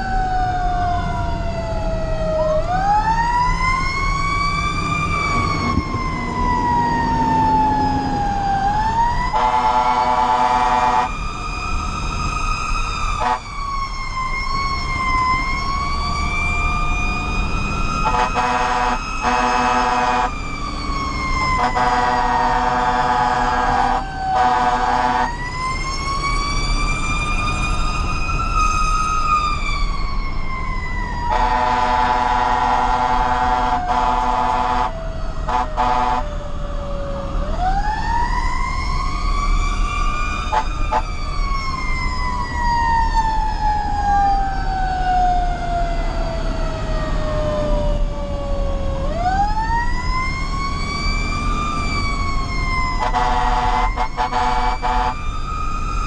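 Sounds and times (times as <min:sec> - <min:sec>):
engine and road rumble: 0:00.0 - 0:56.0
fire engine siren wailing: 0:00.0 - 0:56.0
air horn blasts: 0:09.3 - 0:11.1, 0:13.2 - 0:13.5, 0:18.0 - 0:20.3, 0:21.6 - 0:25.4, 0:31.3 - 0:36.3, 0:53.0 - 0:55.2.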